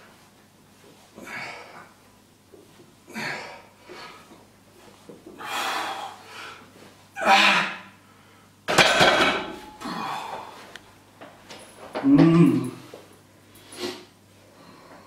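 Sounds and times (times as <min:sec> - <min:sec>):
barbell clanking onto rack: 0:08.7 - 0:09.7.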